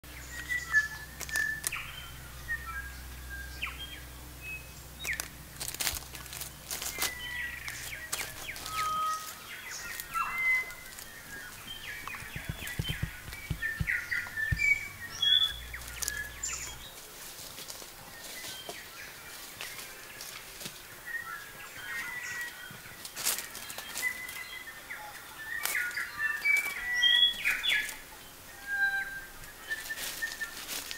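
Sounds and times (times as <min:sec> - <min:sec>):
birds chirping and whistling: 0:00.1 - 0:17.0, 0:21.0 - 0:30.9
sharp clicks: 0:12.0 - 0:15.0.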